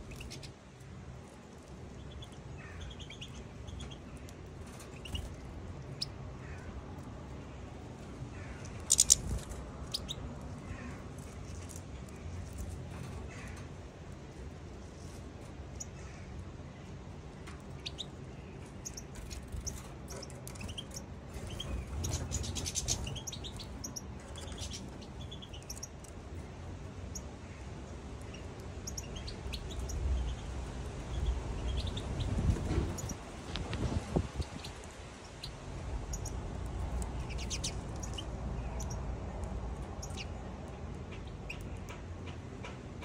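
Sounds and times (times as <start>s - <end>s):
finches chirping and twittering: 0.0s - 0.5s, 2.0s - 6.7s, 8.4s - 10.2s, 17.6s - 26.1s, 27.1s - 33.2s, 34.3s - 39.1s, 39.8s - 40.4s.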